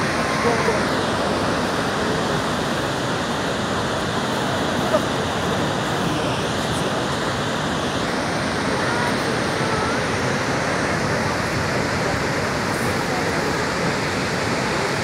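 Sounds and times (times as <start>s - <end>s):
rush of falling water: 0.0s - 15.0s.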